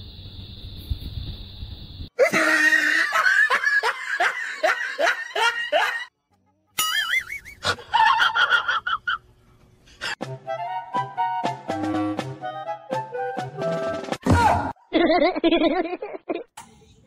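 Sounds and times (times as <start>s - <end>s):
person laughing hard: 2.2s - 6.1s, 7.0s - 9.2s, 14.9s - 16.5s.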